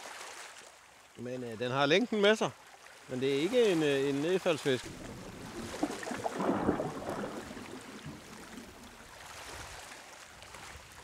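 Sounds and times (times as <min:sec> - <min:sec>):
water splashing and gurgling: 0:00.0 - 0:01.2, 0:02.6 - 0:11.0
small waves lapping: 0:00.0 - 0:11.0.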